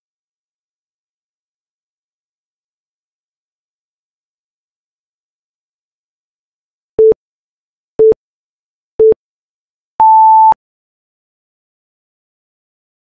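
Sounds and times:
countdown timer beeps: 10.0s - 10.6s.

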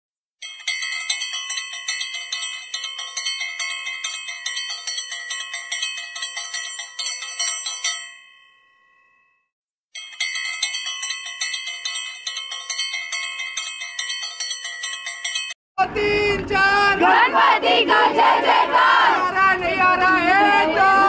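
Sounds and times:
metal bell ringing rapidly: 0.4s - 9.3s, 10.0s - 15.6s.

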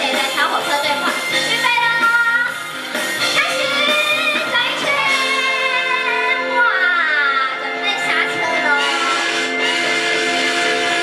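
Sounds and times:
woman singing: 0.0s - 2.6s, 3.3s - 8.8s
upbeat instrumental backing: 0.0s - 11.0s.

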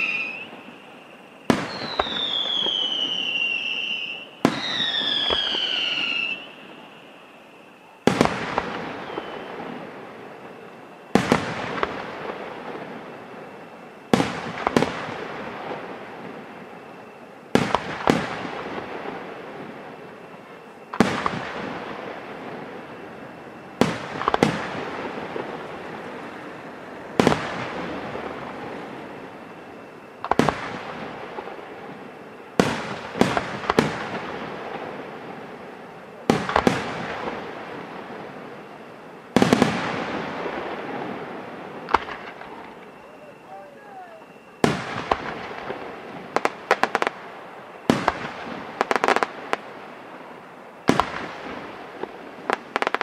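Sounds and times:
firework shells bursting: 17.5s - 49.8s.

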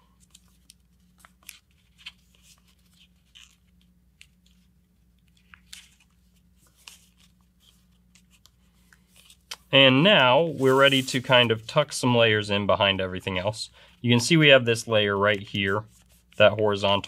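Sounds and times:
paper crinkling and rustling: 0.1s - 12.0s.

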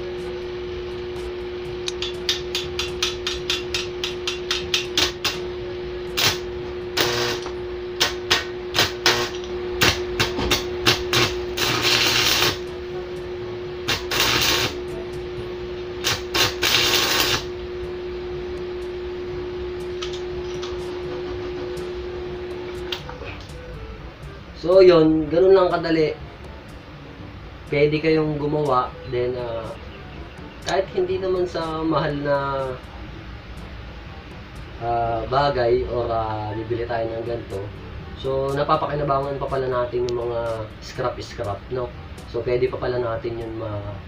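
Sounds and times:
electrical hum: 0.0s - 44.0s
welding arc crackling: 1.2s - 5.5s, 6.1s - 12.8s, 13.8s - 15.0s, 16.0s - 17.6s
electrode clicking and scratching: 6.2s - 12.7s, 13.9s - 14.8s, 16.0s - 17.5s.

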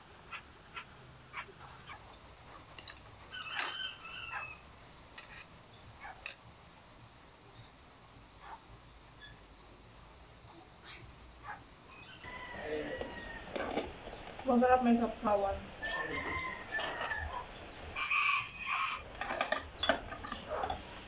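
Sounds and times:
small bird chirping rapidly: 0.0s - 12.3s.

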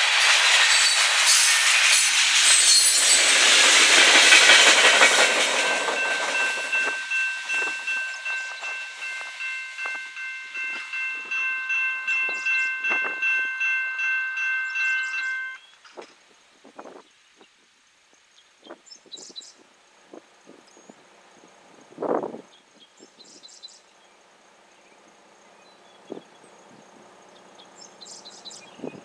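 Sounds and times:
freight train rumbling and clattering: 0.0s - 15.6s
crossing warning bell ringing: 2.6s - 15.6s.

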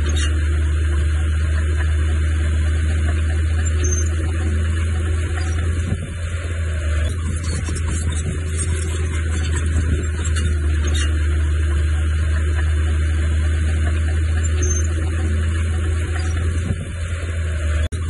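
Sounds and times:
heavy machinery diesel engine: 0.0s - 18.0s.

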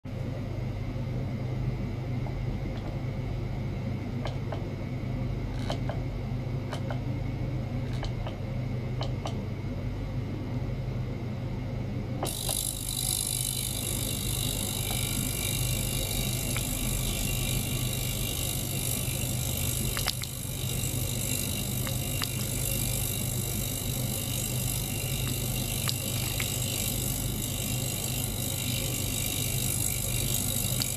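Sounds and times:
ultrasonic cleaner buzzing: 12.2s - 30.9s.

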